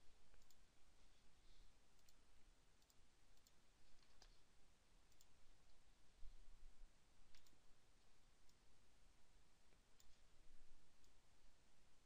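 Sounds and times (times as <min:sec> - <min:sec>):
faint computer mouse clicks: 0:00.3 - 0:00.6, 0:02.8 - 0:04.4, 0:05.1 - 0:05.8, 0:07.3 - 0:07.6, 0:09.7 - 0:10.2.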